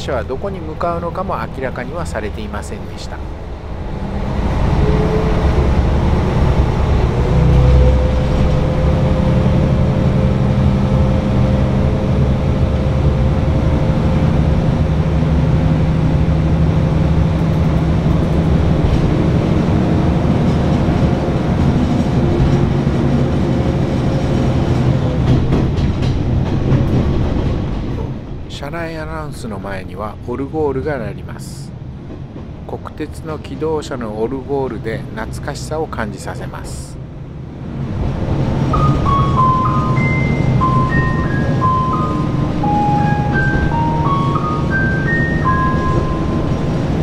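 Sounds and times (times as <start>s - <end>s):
diesel engine drone with whine: 3.2s - 24.4s
wheels clicking over rail joints: 20.2s - 28.3s.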